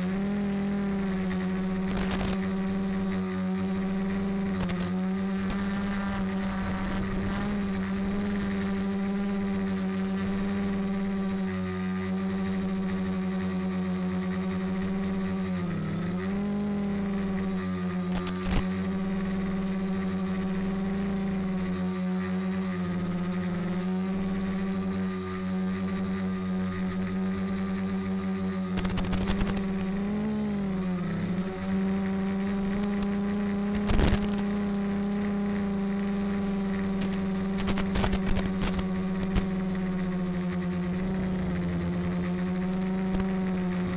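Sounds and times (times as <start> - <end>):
drone motors humming: 0.0 - 43.9
sharp crackles: 1.8 - 2.4, 28.8 - 30.0, 37.0 - 39.6.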